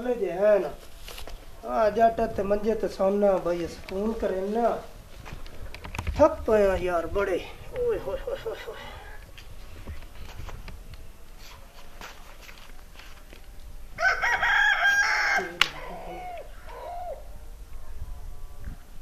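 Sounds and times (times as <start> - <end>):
rooster crowing: 14.0 - 17.6.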